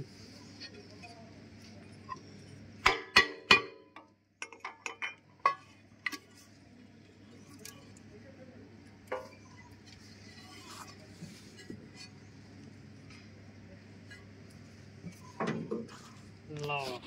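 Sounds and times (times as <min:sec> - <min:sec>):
hammer striking metal: 0:02.8 - 0:05.6.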